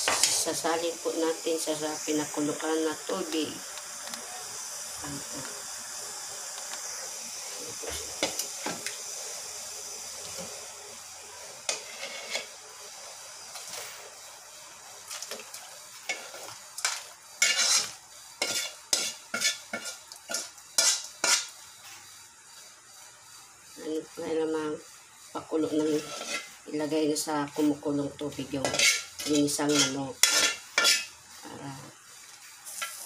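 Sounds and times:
soft hiss of food in hot water: 0.0s - 33.0s
metal ladle scraping and clinking: 16.1s - 21.5s, 28.7s - 31.1s.

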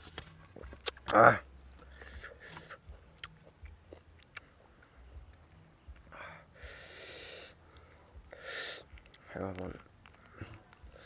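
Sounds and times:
person breathing noisily: 1.8s - 2.9s, 6.1s - 9.0s.

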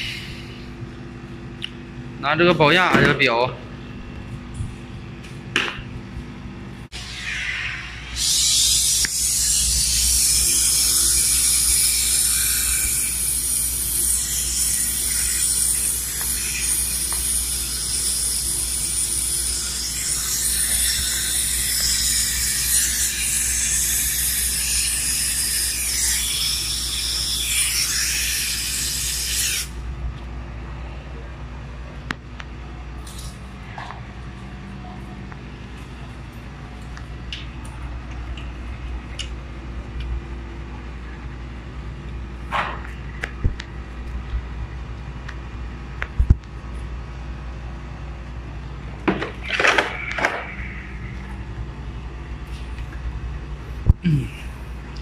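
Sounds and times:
compressed gas hissing: 6.9s - 29.7s.

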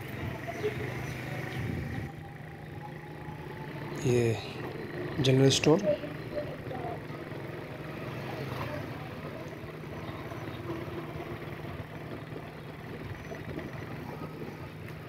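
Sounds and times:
street noise: 0.0s - 15.0s
vehicle engine idling: 0.0s - 15.0s.

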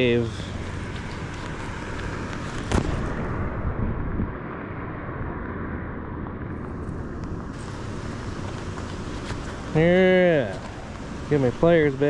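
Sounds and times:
steady rain: 7.6s - 12.0s.

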